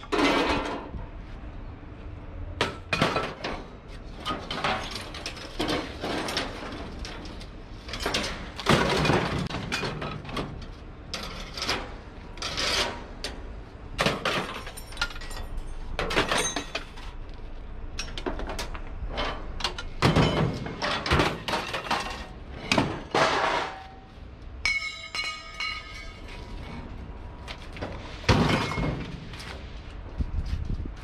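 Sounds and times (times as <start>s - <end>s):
scrap metal clanking and crashing: 0.0s - 1.0s, 2.6s - 13.3s, 14.0s - 17.2s, 18.0s - 24.1s, 24.7s - 27.0s, 27.7s - 29.6s
metal piece ringing: 24.6s - 26.2s.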